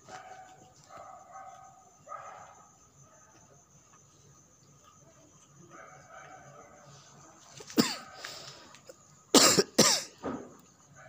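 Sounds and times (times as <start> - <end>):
dog coughing: 7.8 - 8.2, 9.3 - 10.2.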